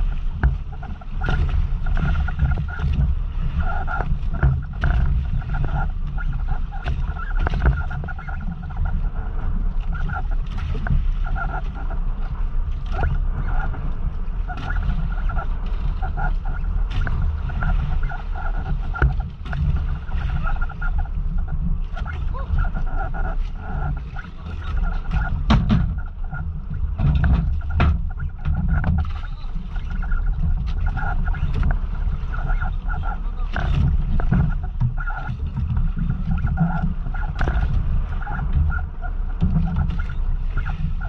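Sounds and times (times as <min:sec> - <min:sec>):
boat engine rumble: 0:00.0 - 0:41.0
gear knocking against boat: 0:00.0 - 0:41.0
water rushing along hull: 0:00.0 - 0:41.0.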